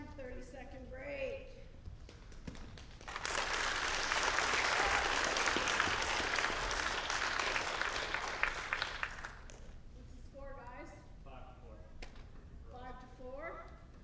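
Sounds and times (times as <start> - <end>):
audience applauding: 2.7 - 9.7.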